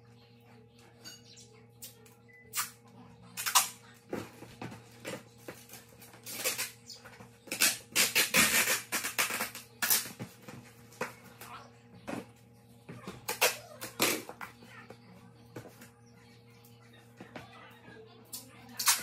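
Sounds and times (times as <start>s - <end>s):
packing tape ripping off roll: 6.2s - 6.8s, 7.5s - 10.1s.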